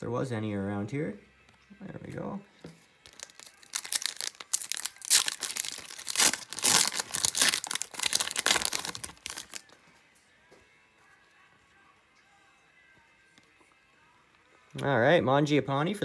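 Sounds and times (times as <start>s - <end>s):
foil wrapper tearing and crinkling: 3.0s - 9.7s.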